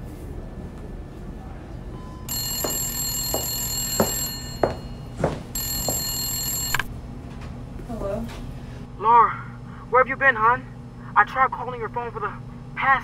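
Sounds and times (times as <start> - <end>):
telephone ringing: 2.3 - 6.9
footsteps on floor: 2.5 - 6.1.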